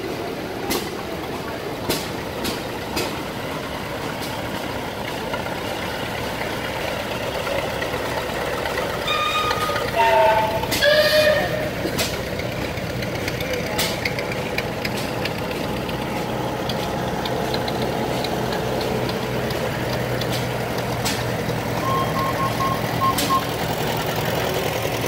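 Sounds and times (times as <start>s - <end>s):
tractor engine running: 0.0s - 25.0s
short high horn tones: 9.1s - 11.7s, 21.8s - 23.5s
sharp clicks: 16.6s - 21.6s.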